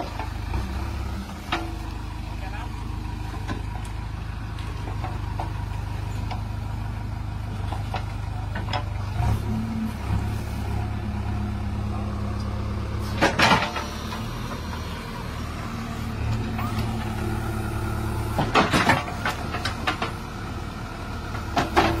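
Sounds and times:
diesel engine humming: 0.0 - 22.0.

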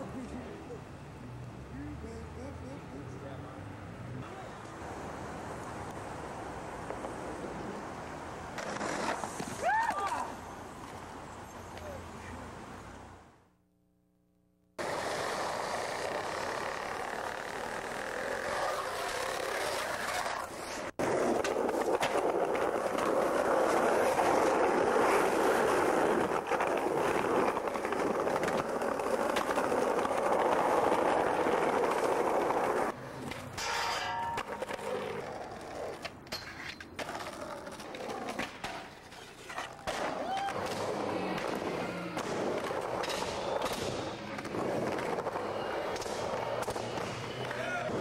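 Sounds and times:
skateboard wheels rolling: 4.1 - 12.0, 14.8 - 48.0
skateboard clacks and scrapes: 8.5 - 9.6, 14.8 - 48.0.

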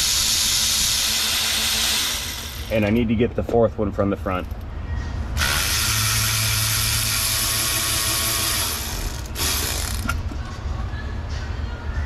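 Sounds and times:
air ratchet hissing: 0.0 - 2.7, 5.4 - 10.2.

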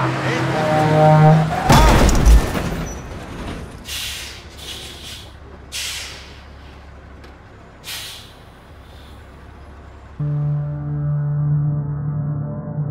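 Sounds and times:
truck engine idling: 0.0 - 11.5
air brake hisses: 3.8 - 6.8, 7.8 - 9.3.

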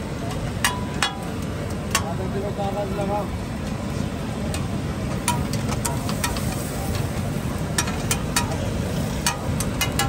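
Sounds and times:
metal spatulas clinking on iron: 7.8 - 10.0.

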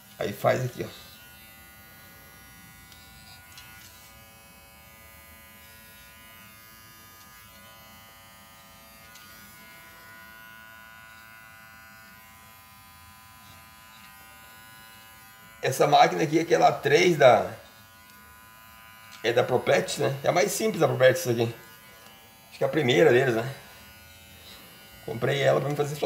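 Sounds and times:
cordless clipper humming: 0.7 - 26.0.

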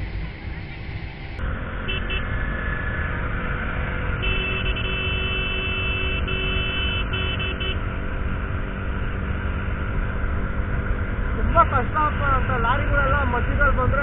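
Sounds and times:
motorcycle engine at speed: 0.0 - 14.0
vehicle horn blasts: 1.9 - 2.3, 4.2 - 7.9.

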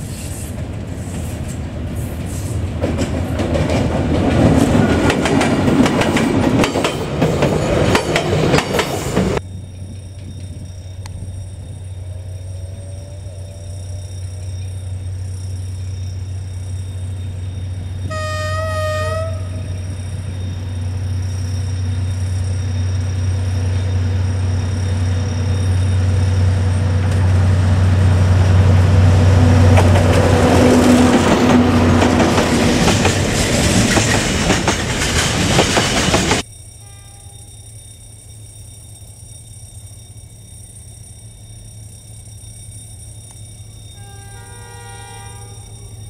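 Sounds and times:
freight wagons rumbling: 0.0 - 36.5
wheels clicking over rails: 2.7 - 11.7, 29.6 - 36.5
locomotive engine drone: 2.7 - 46.0
train horn blast: 18.1 - 19.8, 44.0 - 46.0.

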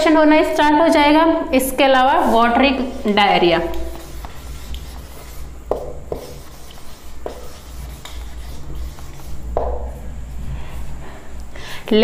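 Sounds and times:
marker writing on whiteboard: 3.0 - 10.0.

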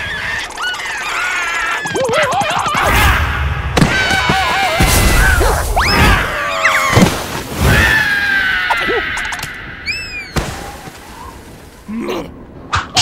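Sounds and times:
squeaky gibberish cartoon voices: 0.0 - 3.2.

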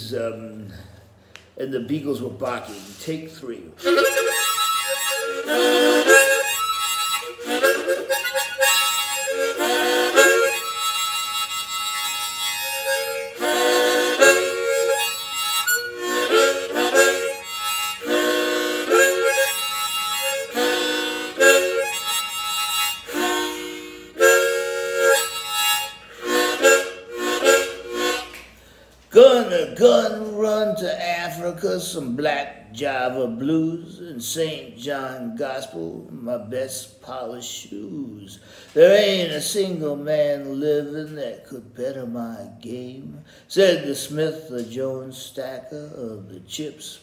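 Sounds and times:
harmonica playing chord phrases: 2.6 - 30.1.

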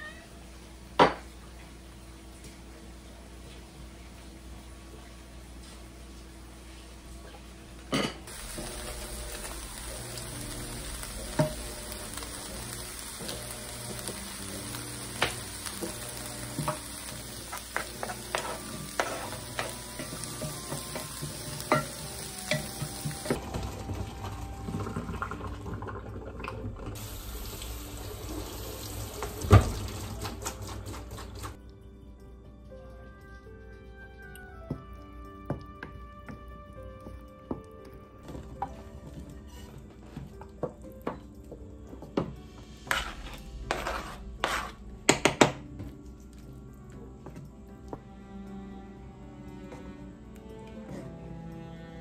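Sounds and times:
food sizzling in a pan: 8.3 - 25.8, 27.0 - 31.2, 42.4 - 45.8.

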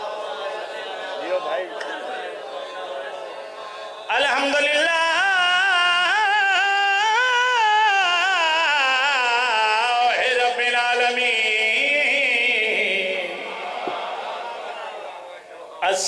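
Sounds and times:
man chanting into a microphone: 4.0 - 13.5, 15.6 - 16.0.

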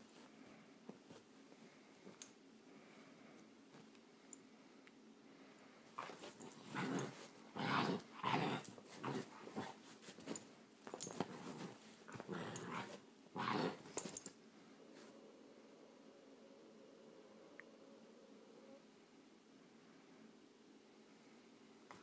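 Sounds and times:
puppy growling: 6.0 - 9.8, 11.3 - 14.0.

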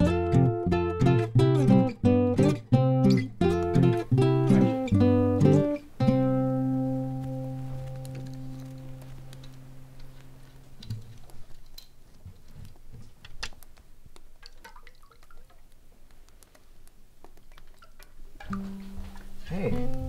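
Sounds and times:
guitar music: 0.0 - 11.2, 18.4 - 20.0
faint clicks and taps: 7.0 - 20.0.

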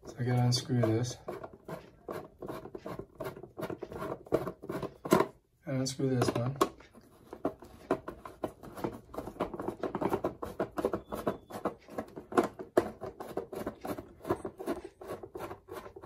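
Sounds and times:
screwdriver turning a screw: 7.0 - 16.0.

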